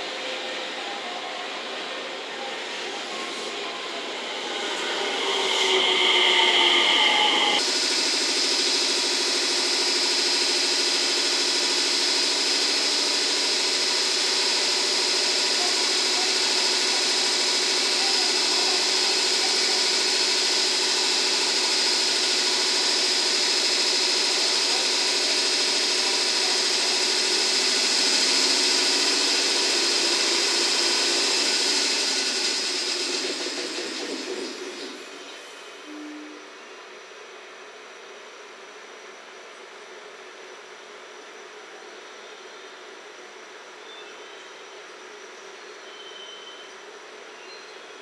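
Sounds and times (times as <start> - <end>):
air compressor running: 0.0 - 0.8, 1.5 - 36.0.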